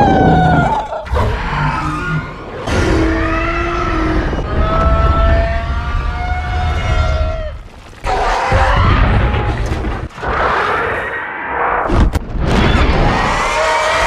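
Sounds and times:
deep rumble: 0.0s - 10.2s
creature raspy screeches: 12.8s - 14.0s.

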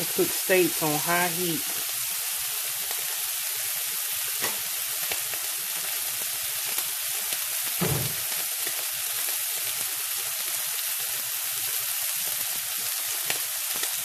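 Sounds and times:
steaks sizzling in skillet: 0.0s - 14.0s
dull low thud: 7.8s - 8.2s.

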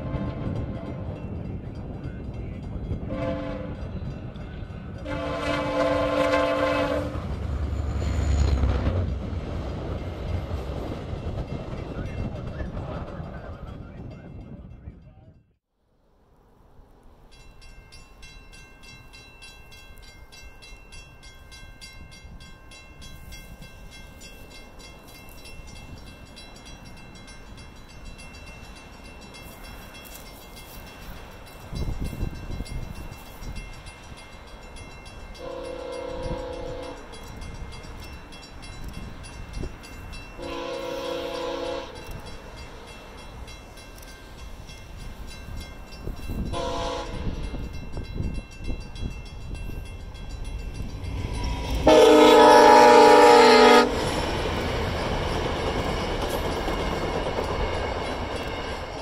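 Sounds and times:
train horn chords: 0.0s - 1.2s, 3.0s - 4.0s, 5.0s - 7.3s, 35.4s - 37.1s, 40.4s - 42.2s, 46.4s - 47.6s, 51.5s - 54.0s
crossing warning bell ringing: 0.0s - 9.2s, 17.2s - 59.0s
train rumble: 0.0s - 15.4s, 16.4s - 59.0s.

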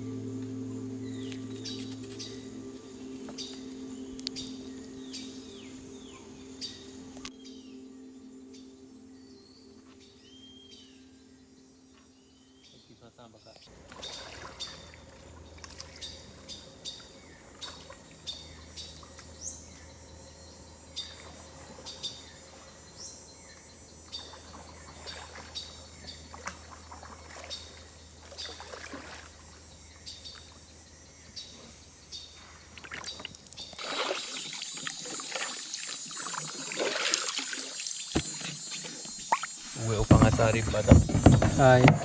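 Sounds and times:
low steady hum: 0.0s - 35.2s
bird chirps and clicks: 3.3s - 4.7s
paddle splashing in water: 13.7s - 16.1s, 24.2s - 29.6s, 32.8s - 42.0s.

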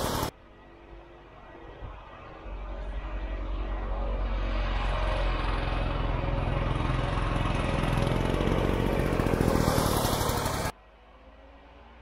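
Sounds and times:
snowmobile engine revving: 4.3s - 10.7s.

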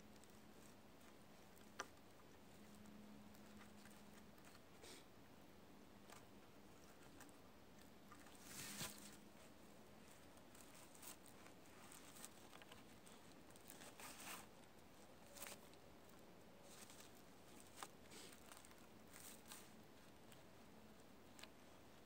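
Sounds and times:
cord rustling around wooden poles: 0.0s - 5.0s, 5.8s - 22.0s
clothing rustling: 8.1s - 20.4s.

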